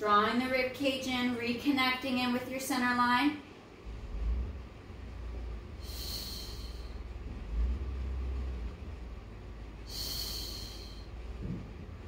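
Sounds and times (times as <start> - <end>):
low rumble: 3.6 - 12.0
woman exhaling sharply: 5.8 - 7.0, 9.8 - 11.2.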